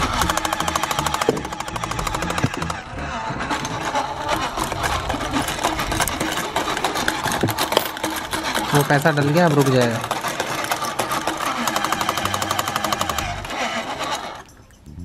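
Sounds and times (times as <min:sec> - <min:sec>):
toy motor and gears whirring: 0:00.0 - 0:15.0.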